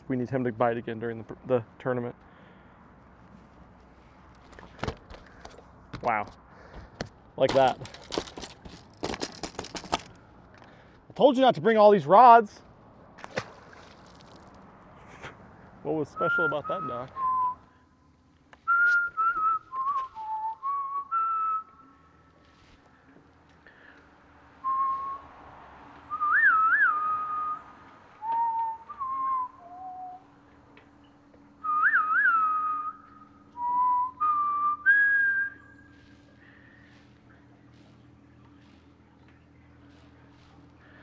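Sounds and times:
person whistling a tune: 16.2 - 17.7, 18.7 - 21.7, 24.6 - 25.2, 26.1 - 27.6, 28.2 - 30.3, 31.6 - 35.9.

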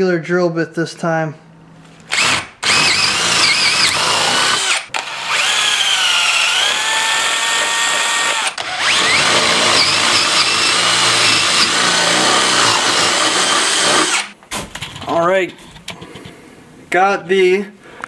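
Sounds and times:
cordless drill boring through wood: 2.1 - 14.4.

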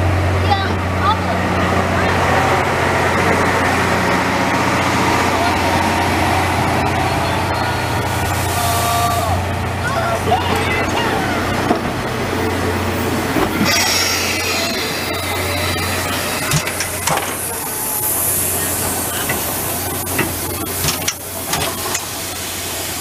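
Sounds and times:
steam train rolling past: 0.0 - 23.0
steam hissing: 13.1 - 23.0.

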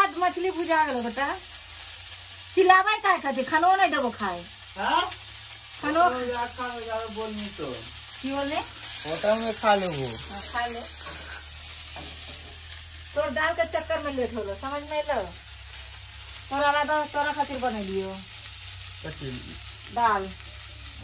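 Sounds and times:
food sizzling in oil: 0.0 - 21.0
people talking: 5.8 - 10.9, 13.2 - 15.4, 16.5 - 18.2, 19.0 - 20.4.

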